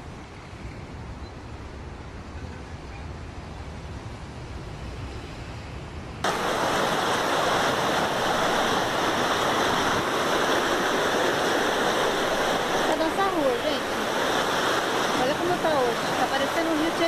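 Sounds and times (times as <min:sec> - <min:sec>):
floodwater rushing: 0:06.2 - 0:17.0.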